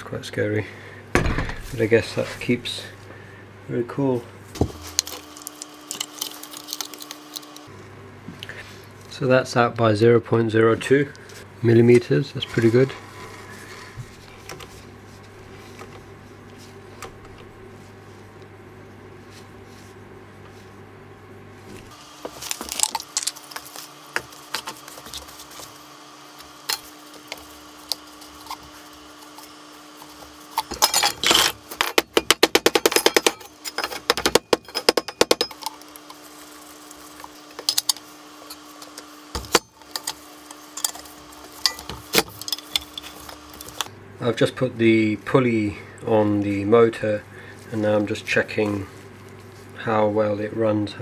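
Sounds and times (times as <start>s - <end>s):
low steady hum: 0.0s - 51.0s
metal parts clinking and rattling: 30.0s - 35.9s, 39.4s - 43.9s.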